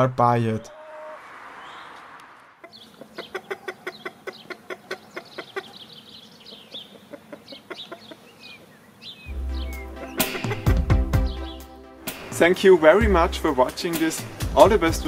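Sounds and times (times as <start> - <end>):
small birds chirping: 0.7 - 11.8
chickens clucking: 2.6 - 9.0, 9.7 - 11.5.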